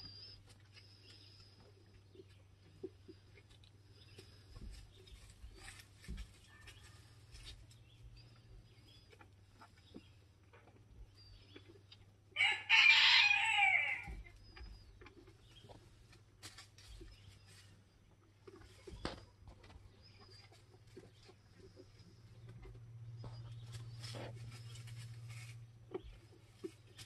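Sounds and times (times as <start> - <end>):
rooster crowing: 12.4 - 14.2.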